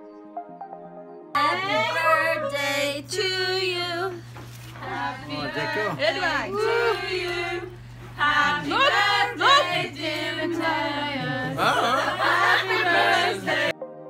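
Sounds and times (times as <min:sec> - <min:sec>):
person singing with pitch slides: 0:01.4 - 0:04.2
steady low hum: 0:01.4 - 0:13.7.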